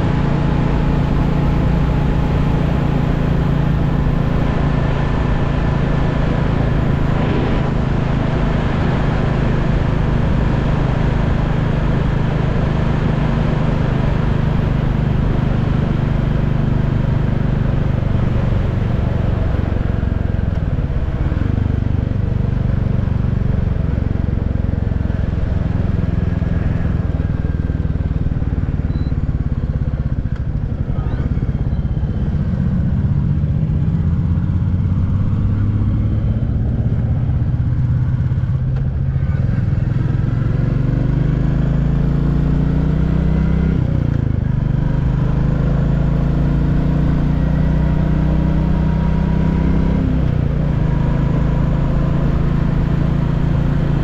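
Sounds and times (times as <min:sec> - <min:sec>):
motorcycle engine and exhaust: 0:00.0 - 0:54.0.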